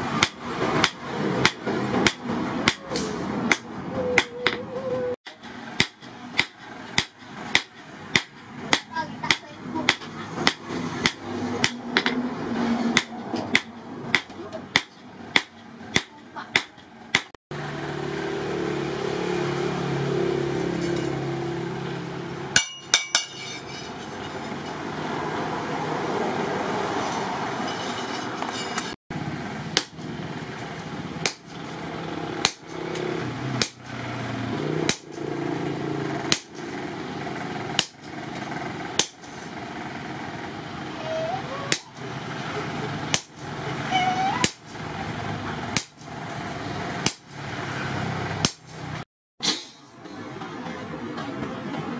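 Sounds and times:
hammer striking metal on anvil: 0.1s - 4.6s, 5.3s - 12.2s, 12.9s - 17.3s, 22.5s - 24.9s, 29.8s - 30.0s, 32.4s - 33.0s, 39.0s - 39.3s.

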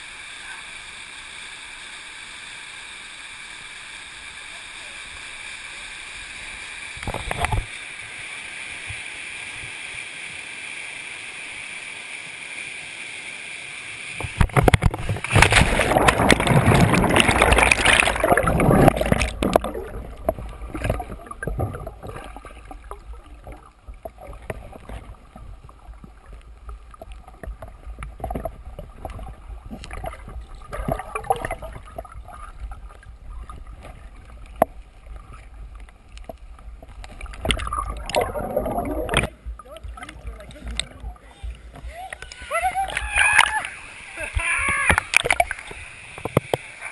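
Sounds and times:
rush of air and water: 0.0s - 46.9s
underwater gurgling and bubbling: 14.2s - 42.4s, 43.8s - 46.9s.

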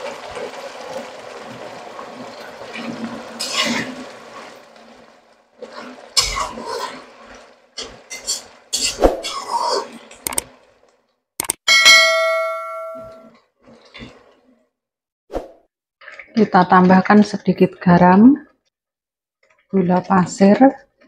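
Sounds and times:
food sizzling in a pan: 0.0s - 10.2s
spatula scraping a pan: 2.7s - 4.5s, 5.6s - 10.1s.

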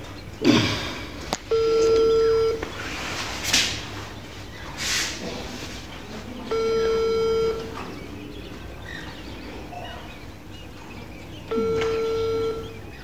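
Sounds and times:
phone ringback tone: 1.5s - 2.6s, 6.5s - 7.8s, 11.5s - 12.8s.

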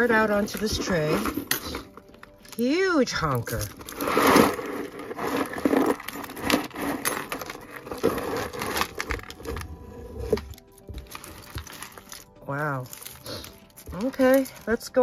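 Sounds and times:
jewelry clattering onto a tray: 0.4s - 2.7s, 3.4s - 9.6s.

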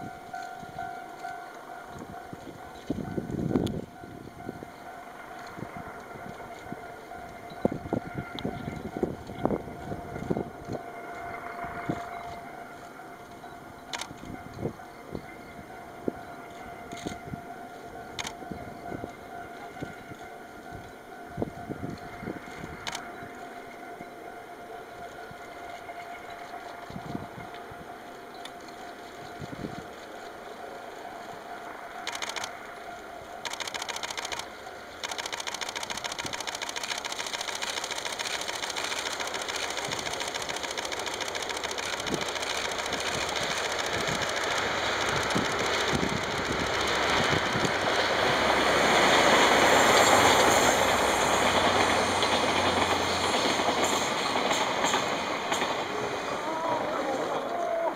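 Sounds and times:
train wheels clattering on rails: 0.0s - 57.9s
diesel engines running: 31.4s - 57.6s.

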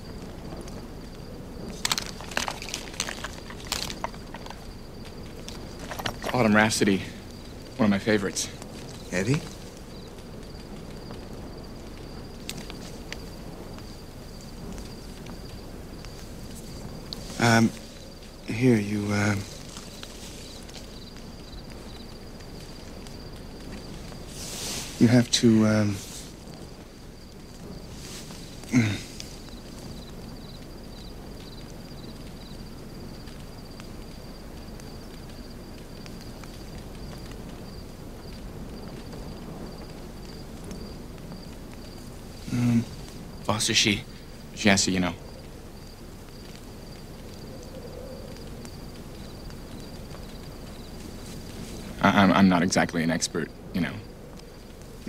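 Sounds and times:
crickets chirping: 0.0s - 55.0s
low background hiss: 0.0s - 55.0s
faint clicks: 28.6s - 37.6s.

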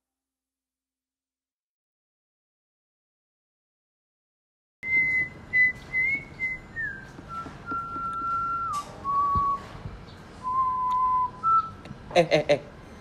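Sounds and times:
person whistling a slow tune: 4.8s - 9.8s, 10.4s - 11.9s.

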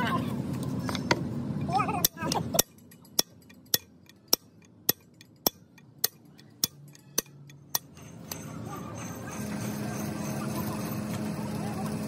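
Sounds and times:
hammer striking metal drift: 2.0s - 8.6s.

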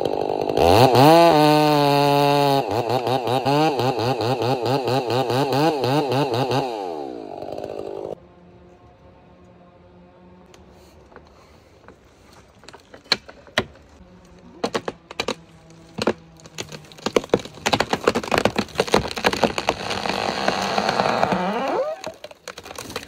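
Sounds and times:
chainsaw idling: 0.0s - 8.2s
tree wood cracking and popping: 10.5s - 23.0s.

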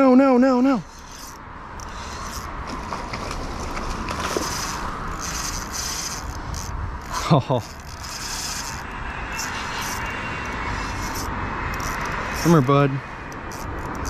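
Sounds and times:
fishing reel rasping: 0.6s - 2.6s, 4.3s - 14.0s.

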